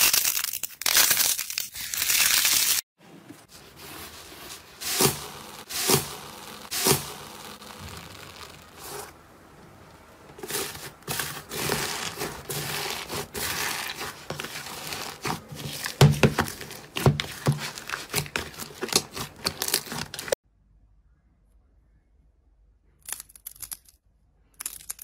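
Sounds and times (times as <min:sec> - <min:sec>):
sharp crisp crackles: 0:00.0 - 0:02.8, 0:04.4 - 0:09.2
slime crinkling and tearing: 0:00.0 - 0:02.8, 0:04.8 - 0:09.0, 0:10.4 - 0:20.4.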